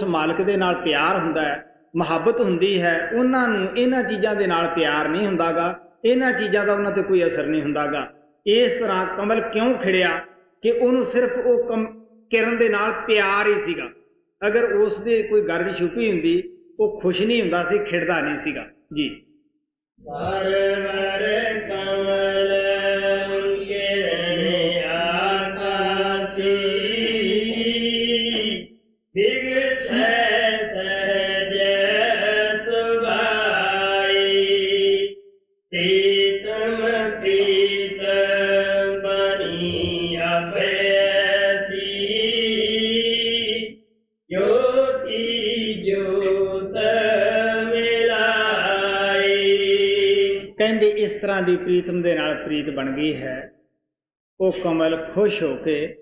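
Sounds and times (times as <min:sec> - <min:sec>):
person chanting a hymn: 0:20.0 - 0:43.7, 0:44.3 - 0:50.8.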